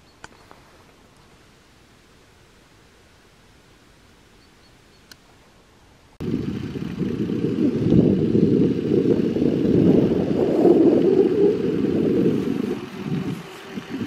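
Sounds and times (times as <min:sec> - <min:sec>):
wind buffeting microphone: 0:06.2 - 0:14.0.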